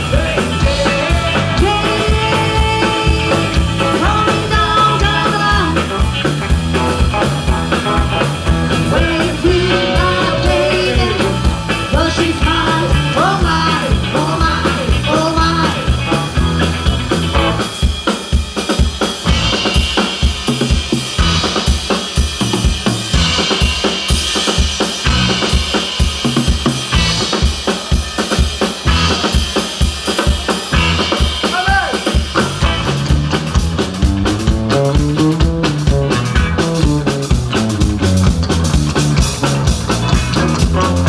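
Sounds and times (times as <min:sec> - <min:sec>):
drum kit: 0:00.0 - 0:41.0
electric guitars: 0:00.0 - 0:41.0
woman singing: 0:00.1 - 0:05.9, 0:08.9 - 0:15.9.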